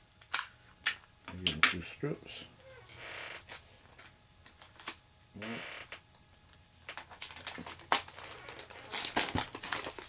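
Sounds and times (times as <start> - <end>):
tape and plastic crackling: 3.0 - 5.0, 6.8 - 10.0.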